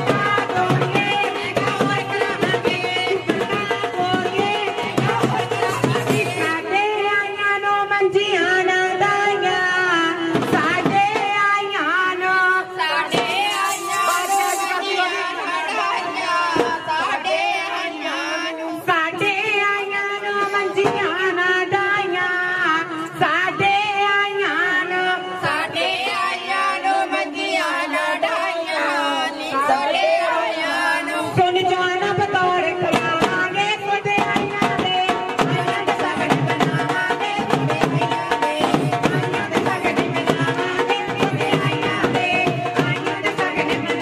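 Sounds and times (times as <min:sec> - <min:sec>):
sharp percussive strikes: 0:00.0 - 0:06.8, 0:13.1 - 0:15.6
person singing into a microphone: 0:00.0 - 0:44.0.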